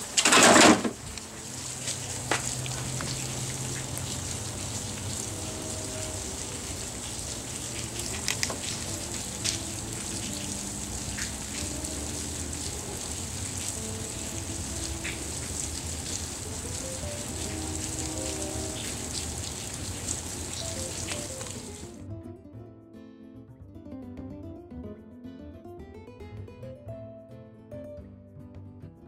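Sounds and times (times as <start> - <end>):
steady rain falling: 0.0 - 22.0.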